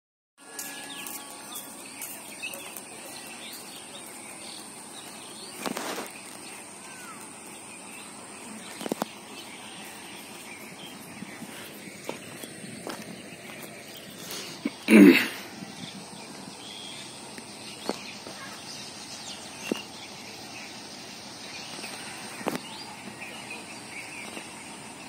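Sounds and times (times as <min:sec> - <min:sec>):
bird chirps: 0:00.4 - 0:25.0
high-pitched insect hum: 0:00.4 - 0:25.0.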